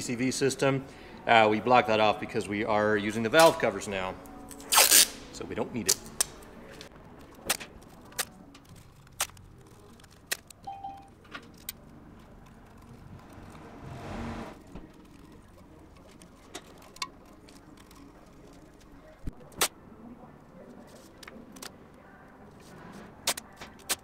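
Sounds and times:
tape rustling: 4.3 - 10.6, 11.2 - 13.7, 14.6 - 19.3
tape clicks and crinkles: 5.8 - 13.6, 14.6 - 19.7, 20.7 - 24.0.

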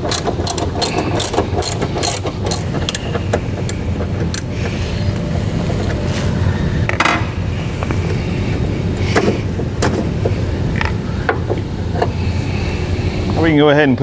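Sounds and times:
metal tools clicking and clinking: 0.0 - 3.2
steady low hum: 0.0 - 14.0.

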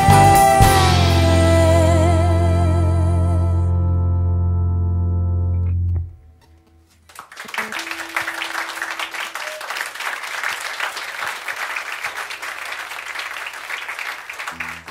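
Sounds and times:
audience applause: 7.1 - 14.9.

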